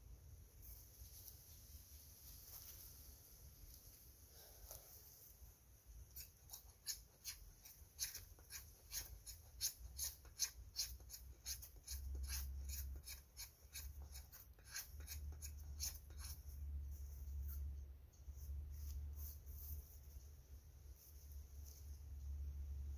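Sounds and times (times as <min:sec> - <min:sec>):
knife scraping a stick: 0:06.1 - 0:16.6.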